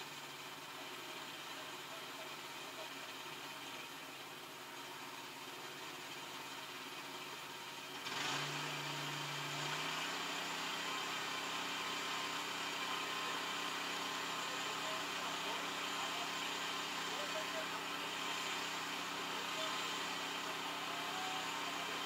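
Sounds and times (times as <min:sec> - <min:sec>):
tractor diesel engine idling: 0:00.0 - 0:22.0.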